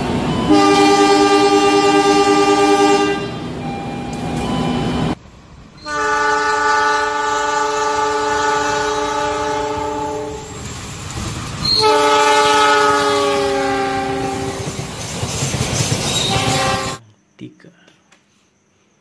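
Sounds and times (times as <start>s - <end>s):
train rumbling on rails: 0.0s - 17.0s
locomotive horn blasts: 0.4s - 4.2s, 5.8s - 10.6s, 11.7s - 14.7s, 16.2s - 17.0s.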